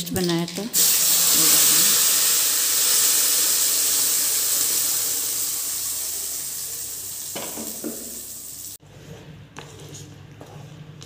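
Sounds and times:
paste sizzling in hot oil: 0:00.7 - 0:08.8.

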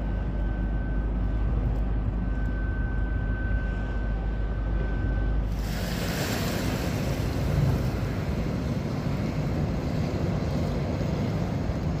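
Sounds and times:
motor barge rumbling: 0:03.9 - 0:12.0
choppy water: 0:05.0 - 0:12.0.

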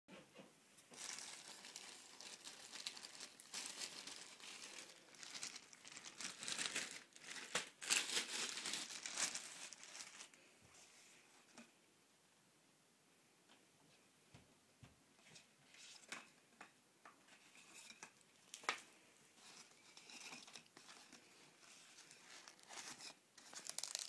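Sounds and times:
plastic bag crinkling: 0:00.9 - 0:10.4, 0:18.4 - 0:24.0.

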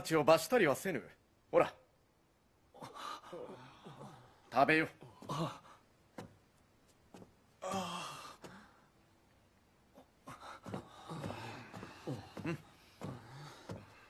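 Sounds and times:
man's wordless vocal sounds: 0:10.0 - 0:14.0.

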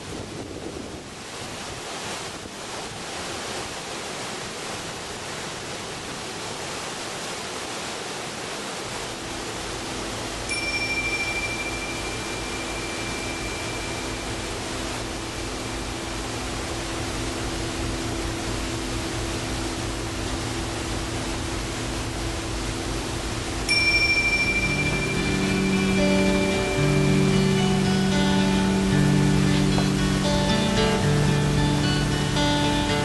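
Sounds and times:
waterfall rushing: 0:00.0 - 0:33.0
low steady drone: 0:08.9 - 0:33.0
high bell-like ringing tone: 0:10.4 - 0:15.1, 0:23.7 - 0:28.9.

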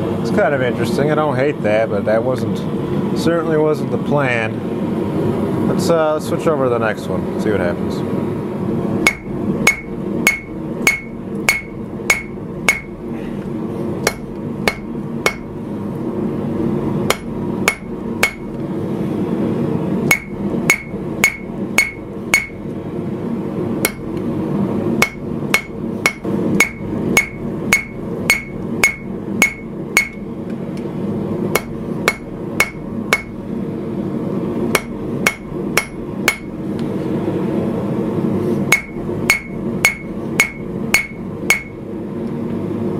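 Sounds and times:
hammer striking metal on anvil: 0:09.0 - 0:13.0, 0:14.0 - 0:15.5, 0:17.1 - 0:18.5, 0:20.1 - 0:22.6, 0:23.8 - 0:24.1, 0:25.0 - 0:30.3, 0:31.5 - 0:33.4, 0:34.7 - 0:36.6, 0:38.7 - 0:41.8.

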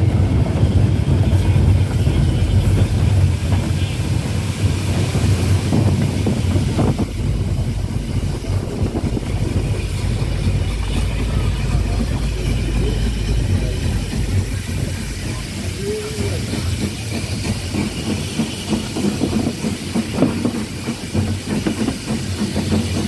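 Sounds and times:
wind on microphone: 0:00.0 - 0:15.2
steam train running rumble: 0:00.0 - 0:23.0.

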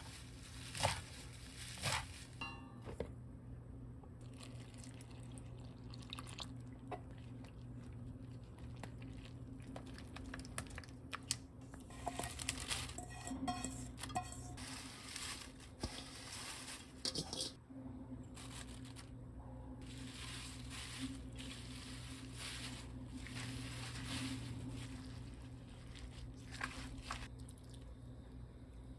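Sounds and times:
crunchy rustle of leaves: 0:00.0 - 0:02.4, 0:12.1 - 0:13.0, 0:14.6 - 0:17.3, 0:18.3 - 0:19.1, 0:19.8 - 0:27.3
steady low hum: 0:00.0 - 0:28.9
water pouring: 0:04.2 - 0:06.9
batter stirring in a metal bowl: 0:11.8 - 0:17.6.

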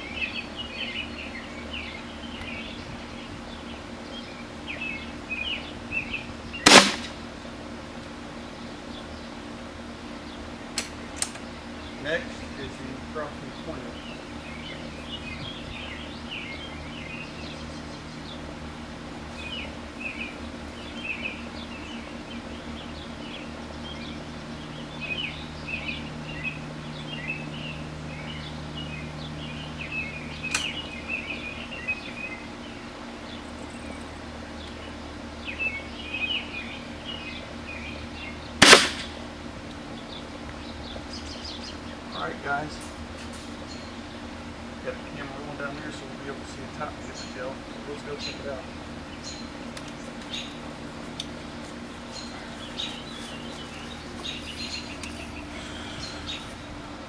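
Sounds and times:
birds chirping: 0:00.0 - 0:57.0
air rifle shot: 0:06.6 - 0:07.2, 0:38.6 - 0:39.2.

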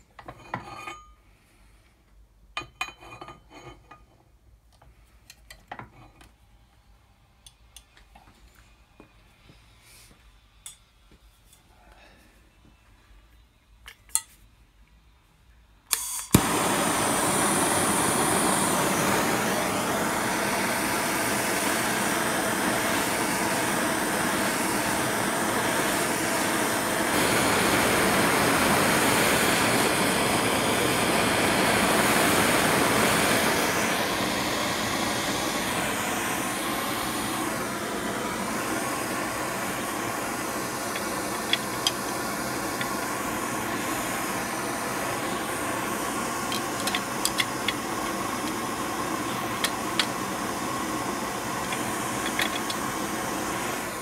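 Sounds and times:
gas torch flame hissing: 0:15.9 - 0:54.0
gas torch igniting click: 0:15.9 - 0:54.0.

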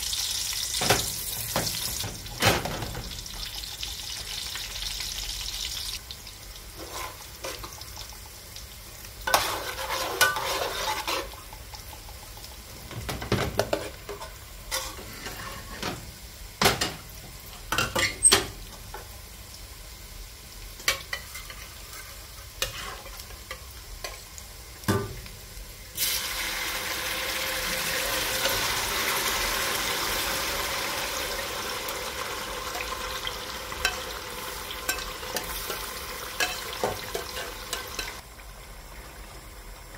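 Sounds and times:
onions sizzling in hot oil: 0:00.0 - 0:39.9
loud sizzle of puree poured in oil: 0:25.6 - 0:39.9.

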